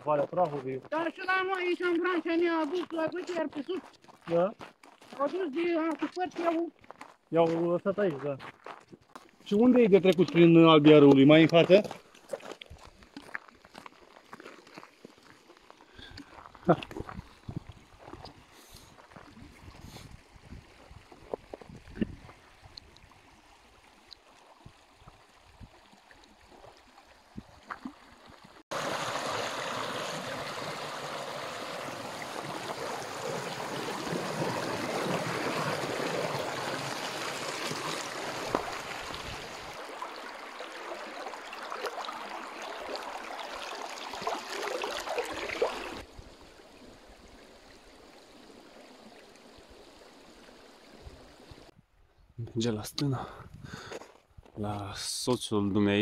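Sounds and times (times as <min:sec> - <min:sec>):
river rushing over rocks: 0:28.7 - 0:46.0.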